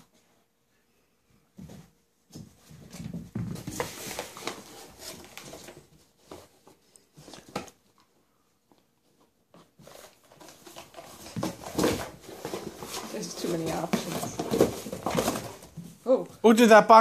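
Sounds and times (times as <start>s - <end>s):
puppy playing with cardboard box: 1.6s - 7.9s, 9.0s - 16.0s.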